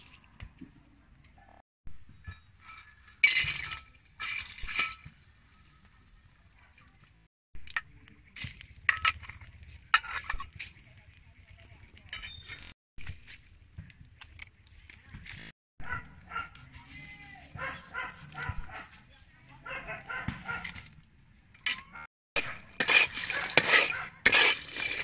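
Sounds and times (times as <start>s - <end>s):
metal spatula scraping wok: 22.4s - 25.0s.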